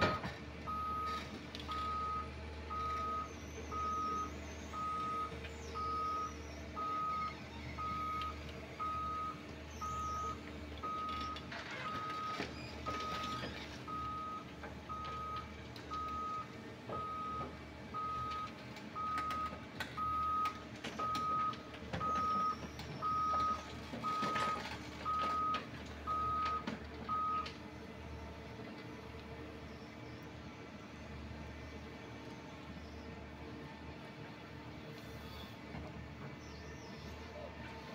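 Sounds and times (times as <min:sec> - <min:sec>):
backup alarm beeping: 0:00.0 - 0:27.5
excavator diesel engine running: 0:00.0 - 0:37.9.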